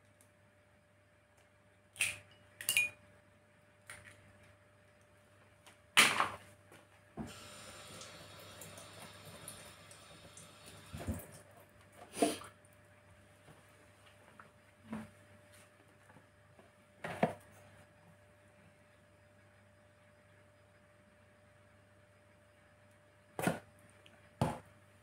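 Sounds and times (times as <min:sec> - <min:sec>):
faint steady noise: 0:06.7 - 0:23.2.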